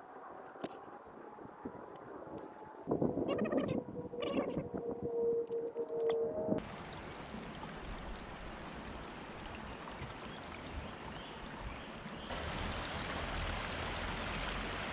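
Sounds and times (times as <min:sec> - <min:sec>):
stream trickling over stones: 0:06.6 - 0:14.9.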